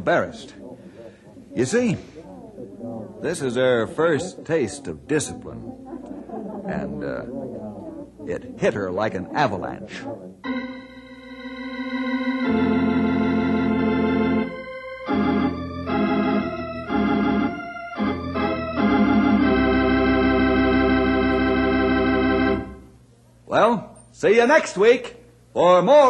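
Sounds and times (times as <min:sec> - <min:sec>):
sustained organ chords: 0:10.4 - 0:23.2.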